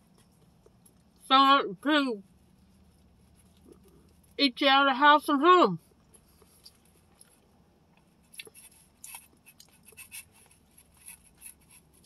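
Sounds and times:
person chewing food: 0:02.8 - 0:04.4, 0:06.0 - 0:12.0.

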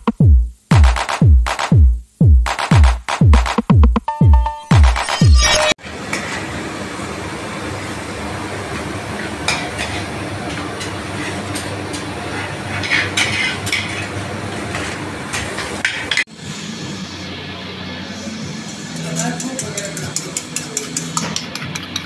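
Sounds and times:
electronic music: 0:00.0 - 0:05.8
dishes and utensils clinking: 0:09.5 - 0:16.3, 0:18.8 - 0:22.0.

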